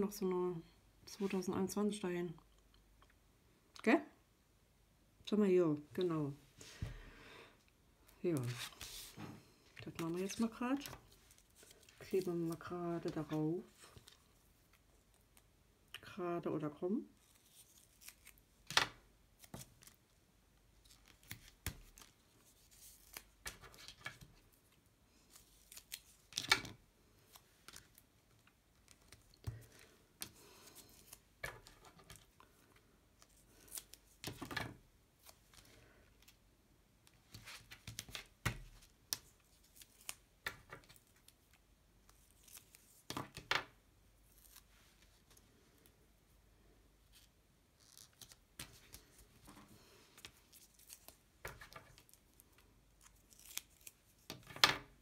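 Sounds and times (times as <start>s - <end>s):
paper and tape rustling: 8.3s - 14.4s, 20.8s - 24.5s, 47.1s - 54.6s.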